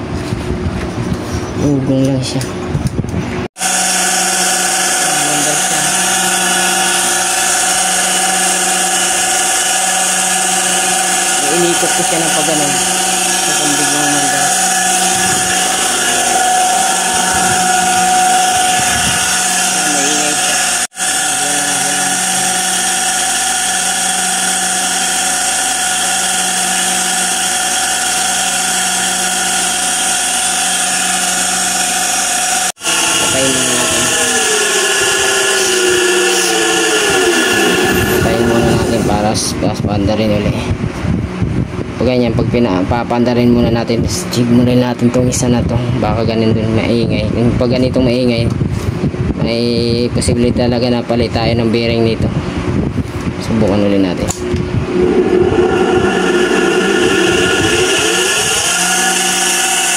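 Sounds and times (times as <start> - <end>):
sewing machine motor humming: 3.6 - 38.5.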